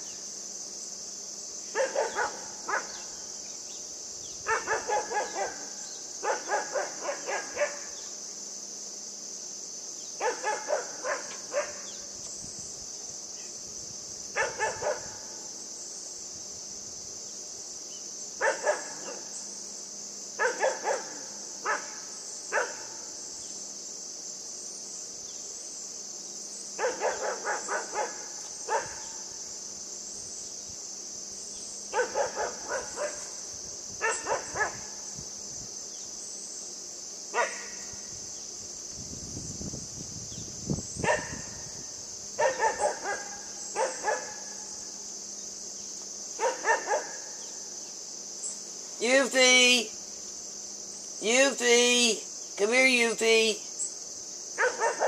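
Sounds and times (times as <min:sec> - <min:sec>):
high-pitched hiss: 0:00.0 - 0:55.0
puppy barking: 0:01.8 - 0:02.9, 0:04.5 - 0:07.9, 0:10.2 - 0:11.8, 0:14.4 - 0:15.1, 0:18.4 - 0:19.2, 0:20.4 - 0:21.9, 0:22.6 - 0:22.9, 0:26.8 - 0:29.0, 0:32.0 - 0:33.3, 0:37.4 - 0:37.7, 0:42.4 - 0:44.4, 0:46.4 - 0:47.2, 0:54.6 - 0:55.0.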